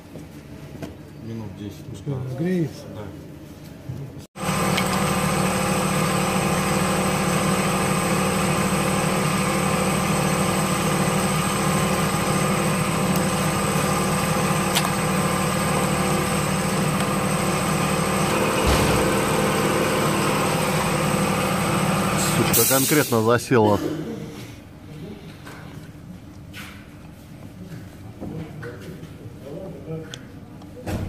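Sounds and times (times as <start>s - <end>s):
diesel engine idling: 4.4s - 23.1s
low thump: 18.5s - 19.4s.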